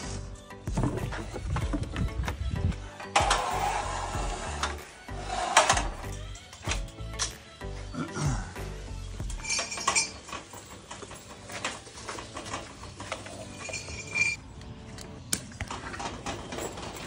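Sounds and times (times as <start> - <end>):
wire spools clinking and rattling: 3.0 - 7.4, 9.2 - 14.4, 15.6 - 17.0
high squeak: 13.4 - 14.4.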